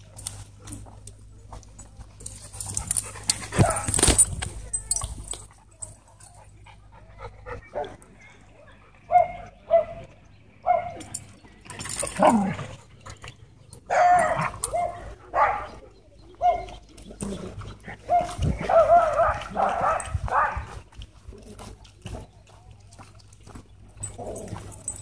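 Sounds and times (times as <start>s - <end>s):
dogs barking and yipping: 2.2s - 20.8s, 23.9s - 25.0s.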